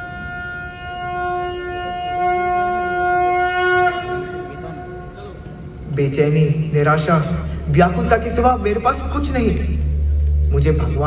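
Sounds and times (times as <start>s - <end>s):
conch shell blown: 0.0s - 5.9s.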